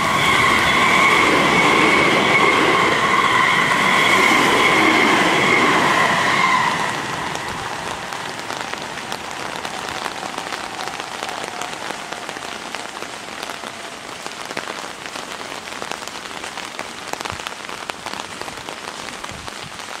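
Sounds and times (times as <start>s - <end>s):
electric train passing: 0.0s - 14.1s
steady rain patter: 0.0s - 20.0s.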